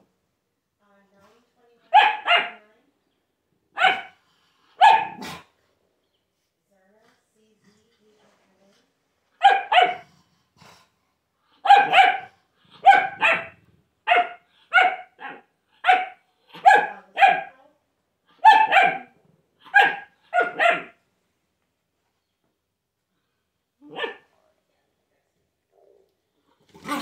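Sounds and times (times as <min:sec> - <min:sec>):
small dog barking: 0:01.9 - 0:02.6, 0:03.7 - 0:04.2, 0:04.8 - 0:05.5, 0:09.4 - 0:10.1, 0:11.6 - 0:17.6, 0:18.4 - 0:21.0, 0:23.8 - 0:24.3.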